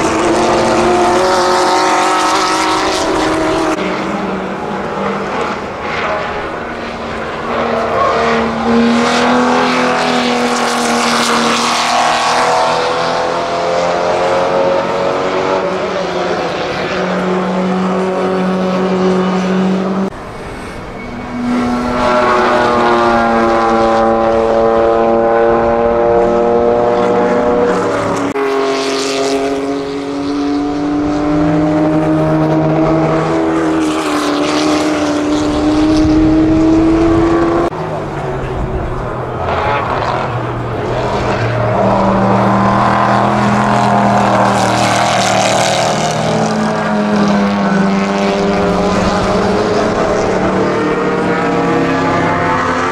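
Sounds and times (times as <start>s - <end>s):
racing cars passing at speed: 0.0s - 52.9s.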